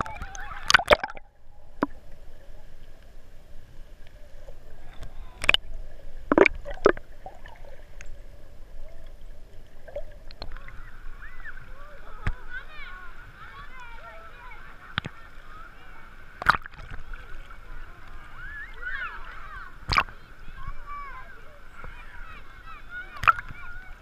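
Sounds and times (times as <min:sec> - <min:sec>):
bubbly underwater gurgling: 0:00.0 - 0:03.0, 0:04.2 - 0:12.4, 0:19.5 - 0:20.2.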